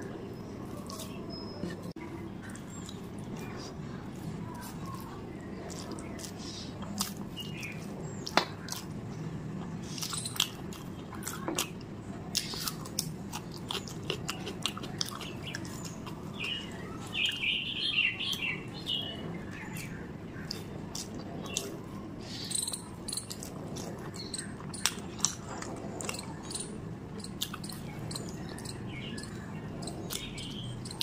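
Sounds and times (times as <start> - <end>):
chewing and lip-smacking: 2.4 - 9.0, 9.6 - 17.4, 20.4 - 21.9, 22.6 - 31.0.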